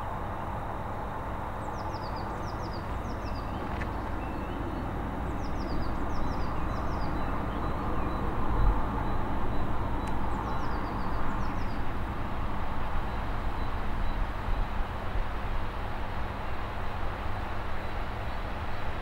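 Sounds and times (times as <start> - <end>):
small birds chirping: 1.6 - 12.1.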